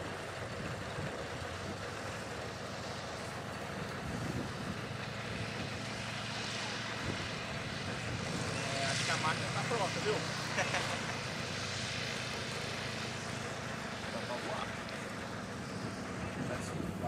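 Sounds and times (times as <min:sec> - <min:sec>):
propeller plane engine running: 0:00.0 - 0:17.0.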